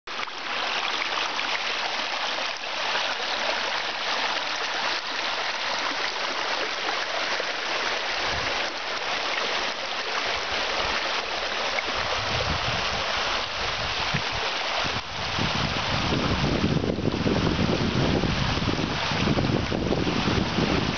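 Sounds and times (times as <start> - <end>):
water rushing down a channel: 0.1 - 20.9
wind rumble on microphone: 8.1 - 8.8, 10.8 - 20.9.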